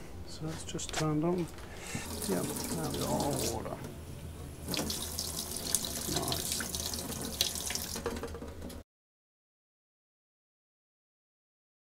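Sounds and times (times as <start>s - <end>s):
tap water splashing into steel sink: 4.6s - 8.4s.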